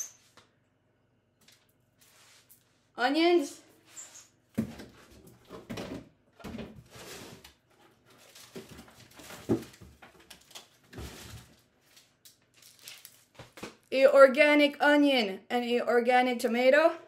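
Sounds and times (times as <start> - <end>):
knocks and thumps of items: 4.6 - 7.4, 8.4 - 11.5.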